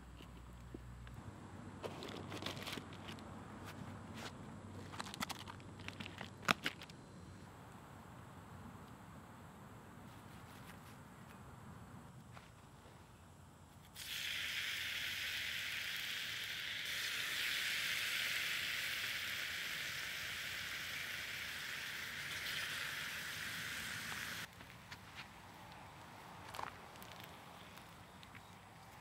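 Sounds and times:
bacon sizzling: 0:14.0 - 0:24.5.

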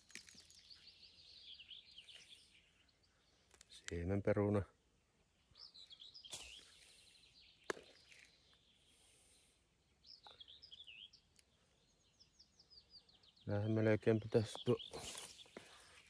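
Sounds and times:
faint songbird song: 0:00.0 - 0:16.0.

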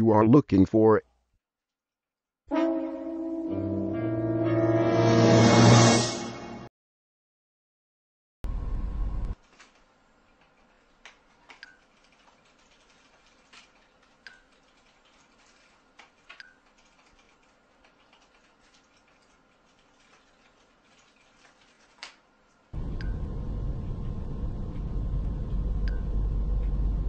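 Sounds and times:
faint clicks: 0:09.2 - 0:23.2.

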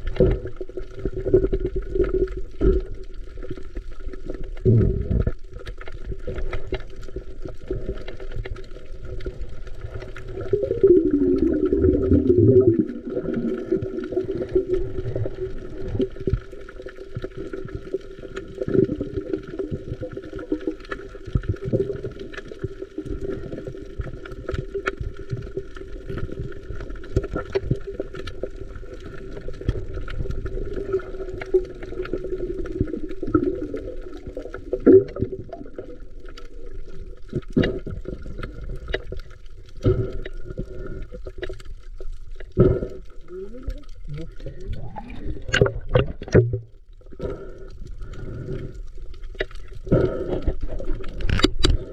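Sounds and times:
water sloshing and gurgling: 0:00.0 - 0:51.9.

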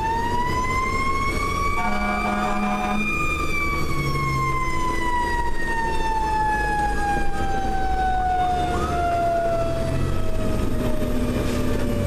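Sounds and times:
mechanical siren winding down: 0:00.0 - 0:12.0
truck engine rumble: 0:00.0 - 0:12.0.

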